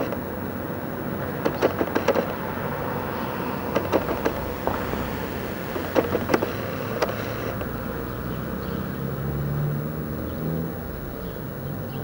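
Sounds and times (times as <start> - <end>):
sharp clicks: 0.0 - 0.4, 1.2 - 7.8
distant helicopters droning: 0.0 - 12.0.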